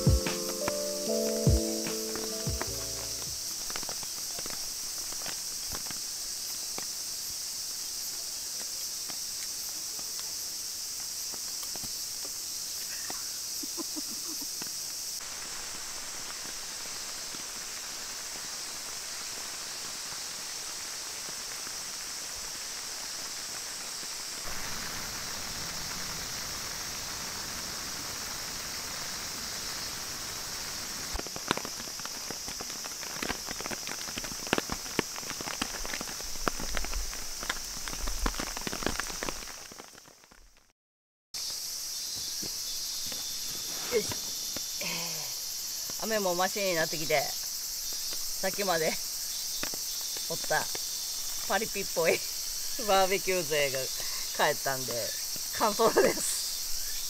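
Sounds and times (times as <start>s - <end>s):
raindrops tapping on a tarp: 0.0s - 7.0s, 11.0s - 12.4s, 14.5s - 26.2s, 31.0s - 40.7s, 47.9s - 52.2s
rain hiss: 0.0s - 40.7s, 41.4s - 57.0s.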